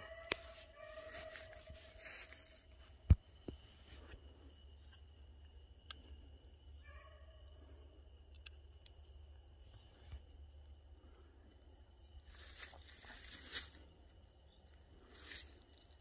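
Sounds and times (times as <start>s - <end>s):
footsteps crunching on pine straw: 0.0s - 3.2s, 12.3s - 14.0s, 15.0s - 15.6s.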